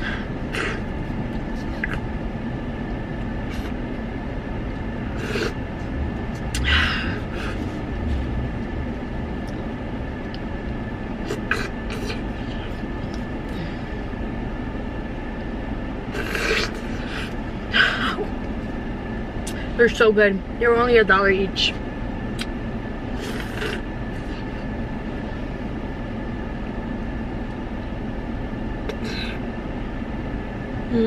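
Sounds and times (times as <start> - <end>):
car interior hum: 0.0 - 31.0.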